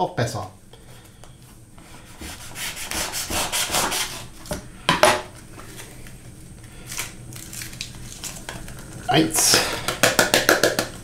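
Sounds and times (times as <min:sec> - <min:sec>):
packet ripping open: 0:06.8 - 0:09.1.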